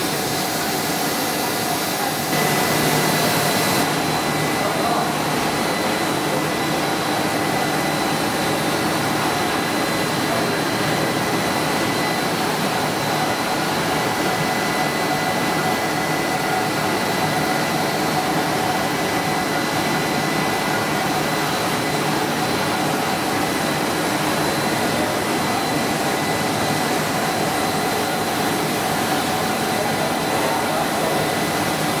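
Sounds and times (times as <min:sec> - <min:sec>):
high steady whine: 0:00.0 - 0:32.0
machinery whir: 0:00.0 - 0:32.0.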